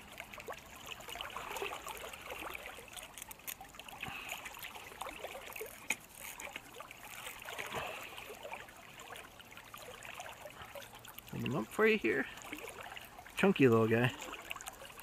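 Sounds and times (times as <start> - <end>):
river water splashing: 0.0 - 15.0
fish splashing while unhooked: 0.1 - 11.6.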